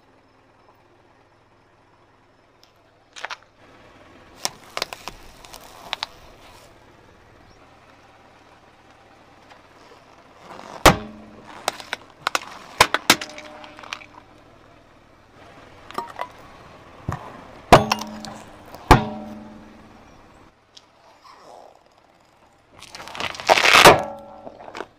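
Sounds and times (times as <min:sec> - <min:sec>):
tyre crushing plastic items: 0:04.4 - 0:06.5, 0:10.4 - 0:14.4, 0:17.1 - 0:19.7, 0:22.8 - 0:24.9.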